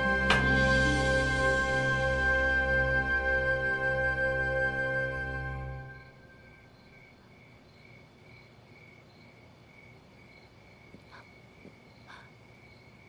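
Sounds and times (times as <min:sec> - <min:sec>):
crickets chirping: 0:05.9 - 0:13.0.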